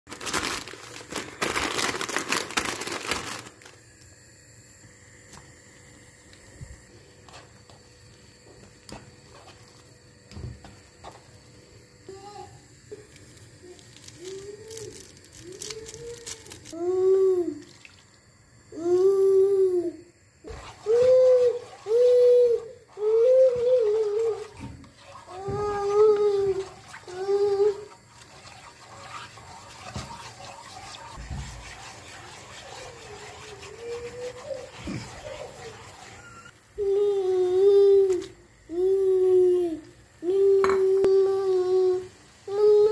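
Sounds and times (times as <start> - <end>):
water bubbling in a pan: 23.8 - 36.6
spatula scraping and tapping: 28.2 - 36.4.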